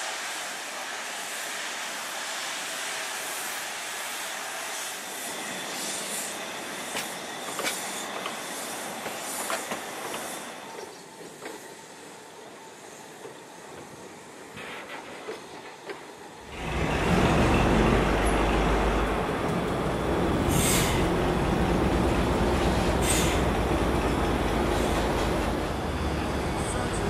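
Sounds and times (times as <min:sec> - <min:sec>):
steam hissing: 0:00.0 - 0:27.0
train wheels squealing: 0:00.0 - 0:27.0
train wheels clicking over rail joints: 0:06.9 - 0:11.9, 0:13.2 - 0:27.0.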